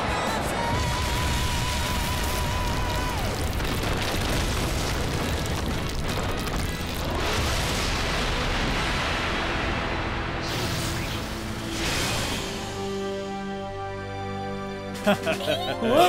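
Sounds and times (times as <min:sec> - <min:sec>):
background music: 0:00.0 - 0:16.0
cartoon explosion: 0:00.8 - 0:12.7.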